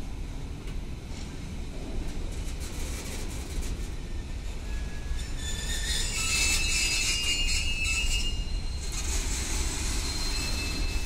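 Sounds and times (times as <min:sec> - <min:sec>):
train wheels rumbling on rails: 0:00.0 - 0:11.0
metallic wheel squeal: 0:04.7 - 0:11.0.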